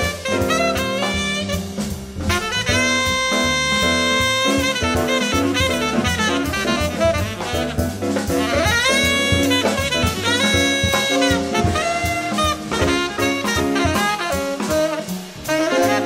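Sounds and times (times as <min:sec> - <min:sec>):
double bass: 0:00.0 - 0:16.0
drums on cymbals: 0:00.0 - 0:16.0
piano: 0:00.0 - 0:16.0
tenor saxophone jazz solo: 0:00.0 - 0:16.0.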